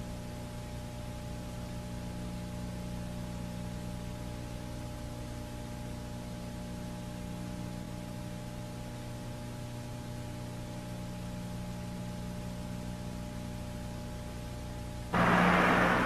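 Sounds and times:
low electrical hum: 0:00.0 - 0:16.0
tape hiss: 0:15.1 - 0:16.0.

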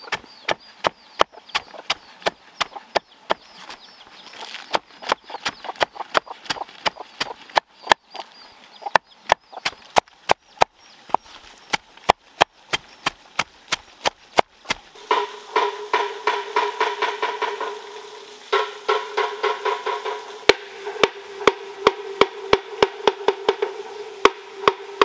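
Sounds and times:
knife chopping on wooden block: 0:00.0 - 0:03.8.

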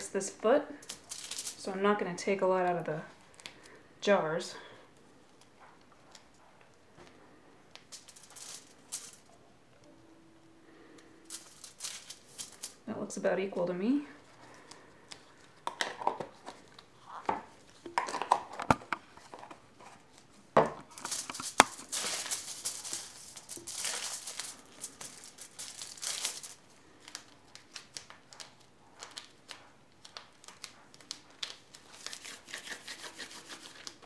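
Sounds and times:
plastic sheet crinkling: 0:00.8 - 0:01.7, 0:07.8 - 0:09.3, 0:10.7 - 0:12.9, 0:14.1 - 0:34.0
rubber gloves stretching and rustling: 0:14.2 - 0:34.0.

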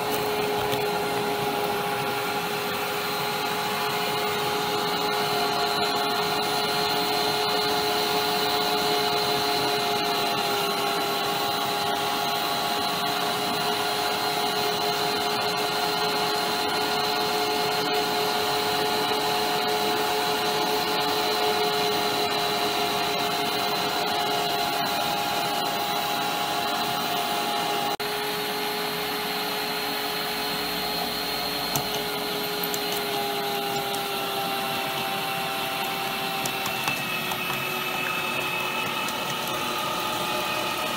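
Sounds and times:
meat grinder motor whining: 0:00.0 - 0:40.9.

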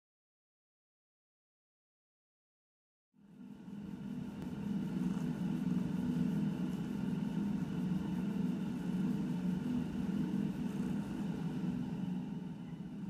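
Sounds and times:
cat purring: 0:05.0 - 0:06.0.

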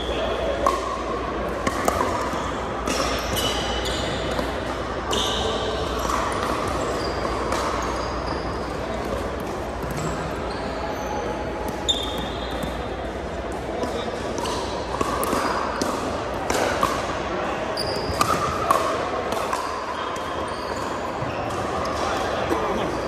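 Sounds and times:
shoes squeaking on floor: 0:02.3 - 0:12.9, 0:17.7 - 0:18.2, 0:19.7 - 0:21.7.

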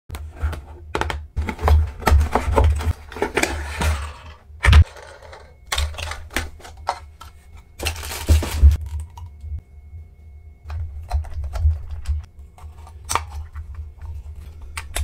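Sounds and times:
cardboard box and plastic handling: 0:00.2 - 0:04.2, 0:05.8 - 0:08.8.

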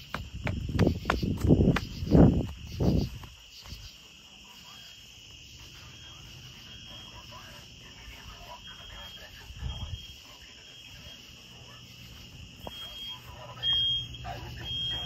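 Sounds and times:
thumps and rustles near microphone: 0:00.0 - 0:03.9
crickets chirping: 0:00.0 - 0:15.0.

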